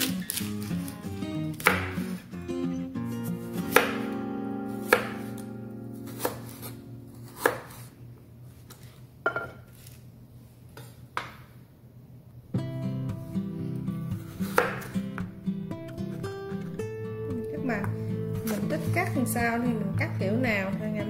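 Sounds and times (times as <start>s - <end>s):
soft guitar music: 0.0s - 7.8s, 12.5s - 21.0s
knife chopping on wooden board: 1.6s - 2.2s, 3.7s - 4.1s, 4.8s - 5.4s, 6.1s - 7.9s, 14.4s - 14.9s.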